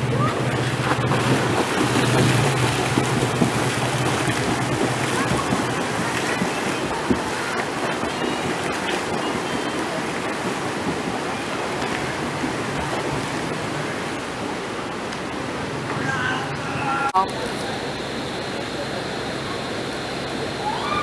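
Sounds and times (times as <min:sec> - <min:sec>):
swimmer kicking and splashing: 0:00.0 - 0:14.8.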